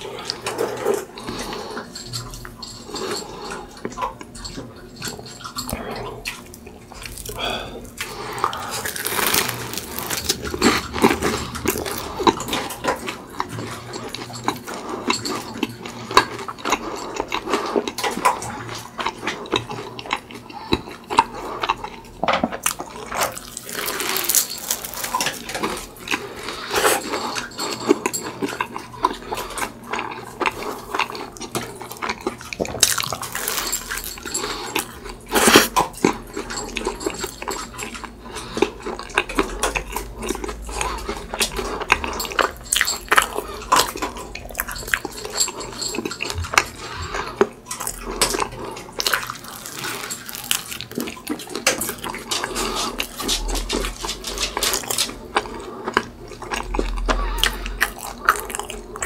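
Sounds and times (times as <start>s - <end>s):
crisp crunches: 8.0s - 12.4s, 22.8s - 26.9s, 32.6s - 34.8s, 47.8s - 53.3s.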